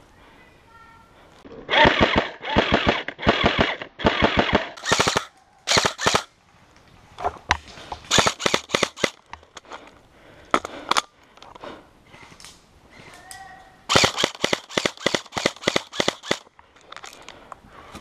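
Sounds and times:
airsoft rifles firing bursts: 1.7 - 6.3, 8.1 - 9.2, 13.9 - 16.5.

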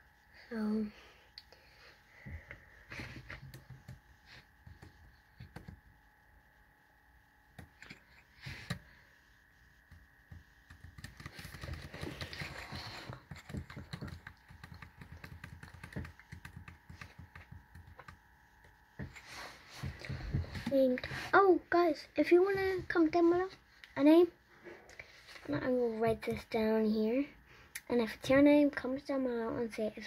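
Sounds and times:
keyboard typing clicks: 10.7 - 12.5, 13.3 - 18.2.

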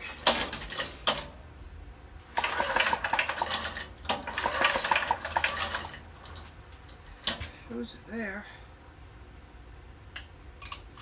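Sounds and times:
recoil starter pulls clattering: 2.3 - 6.5.

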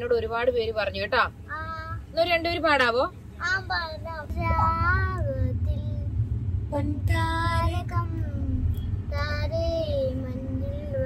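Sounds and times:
car cabin hum: 0.0 - 11.0
young boy singing: 1.5 - 2.1, 3.4 - 6.1, 6.7 - 11.0.

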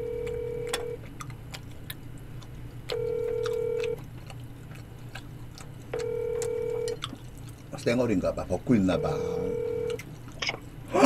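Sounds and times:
phone ringback beep: 0.0 - 1.0, 2.9 - 3.9, 6.0 - 7.0, 9.0 - 10.0.

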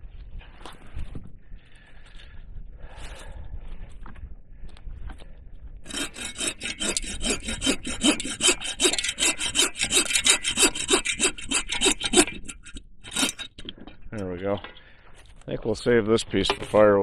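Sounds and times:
hand saw cutting log: 5.9 - 13.8.

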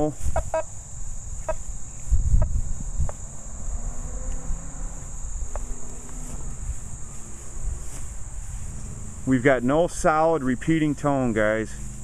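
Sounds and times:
crickets chirring: 0.0 - 12.0
low rumble: 2.8 - 12.0.

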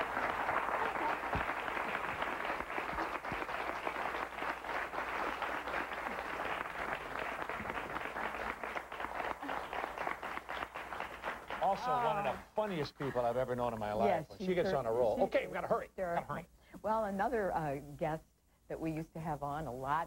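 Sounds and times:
audience applauding: 0.0 - 12.5.

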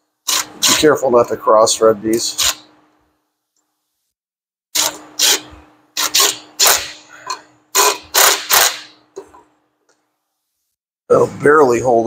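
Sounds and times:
power tool driving bolts: 0.3 - 0.9, 2.3 - 2.7, 4.7 - 9.4.

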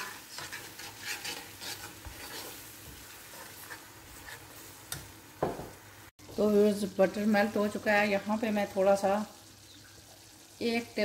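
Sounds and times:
metal spoon scraping pan: 0.0 - 4.8
sauce sizzling in frying pan: 0.0 - 11.0.

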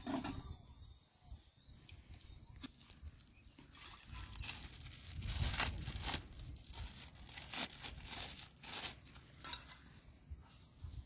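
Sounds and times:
plastic bag crinkling and tearing: 2.8 - 9.3.

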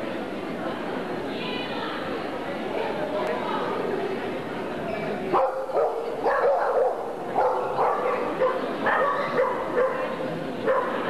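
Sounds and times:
dog barking: 5.4 - 11.0.

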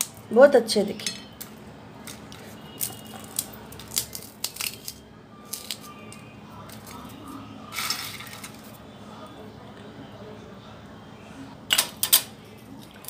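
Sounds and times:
crisp snack snapping and crackling: 1.4 - 8.7.

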